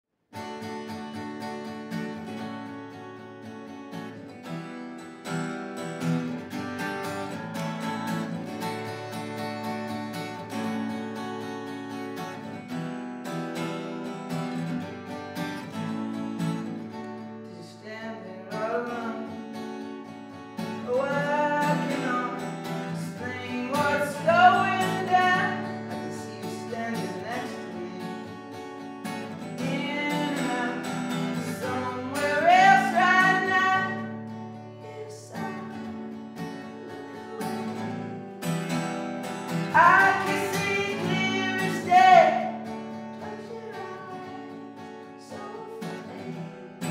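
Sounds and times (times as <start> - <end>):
acoustic guitar strumming: 0.4 - 46.9
man singing: 20.8 - 28.5, 29.5 - 34.1, 34.8 - 35.9, 39.7 - 44.6, 45.2 - 46.9.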